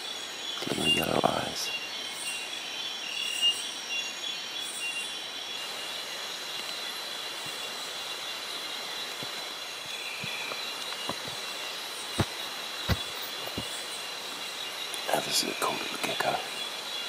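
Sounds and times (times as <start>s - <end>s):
insects buzzing and trilling: 0.0s - 17.0s
short insect chirps: 0.0s - 17.0s
faint footsteps on trail: 6.5s - 17.0s.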